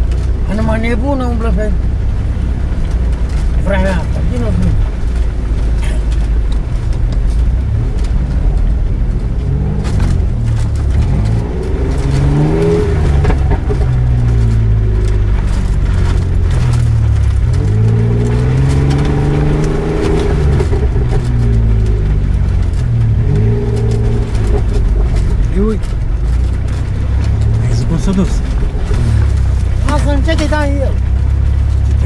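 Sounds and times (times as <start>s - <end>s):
car engine revving: 0.0s - 32.0s
knocks and rattles: 1.9s - 32.0s.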